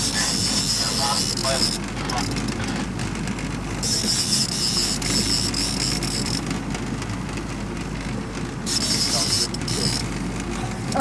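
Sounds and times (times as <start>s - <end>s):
fishing reel whirring: 0.0s - 2.3s, 3.8s - 6.5s, 8.6s - 10.1s
boat engine running: 0.0s - 11.0s
water noise: 0.0s - 11.0s
wind: 0.0s - 11.0s.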